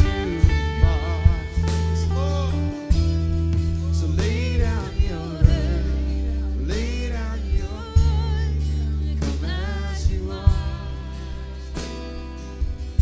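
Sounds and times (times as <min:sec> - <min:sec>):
strummed guitar chords: 0:00.0 - 0:13.0
worship band playing slow song: 0:00.0 - 0:13.0.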